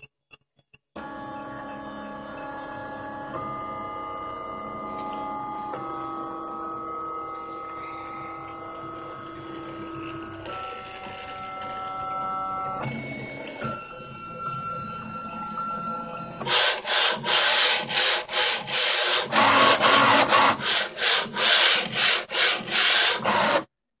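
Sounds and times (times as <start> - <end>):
stepper motors whining: 7.6 - 23.7
carriage rasping on rods: 16.4 - 23.6.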